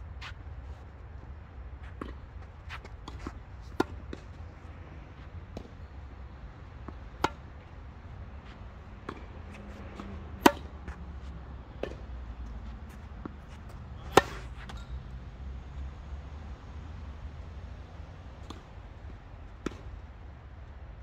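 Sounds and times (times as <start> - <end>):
racket hitting tennis ball: 1.8 - 4.5, 5.2 - 7.8, 8.4 - 15.0
faint ball strikes: 9.9 - 11.0.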